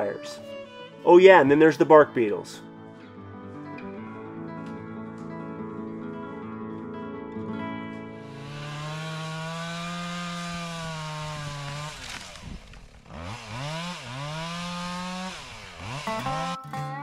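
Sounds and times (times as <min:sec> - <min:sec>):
chainsaw engine revving: 0:08.2 - 0:16.6.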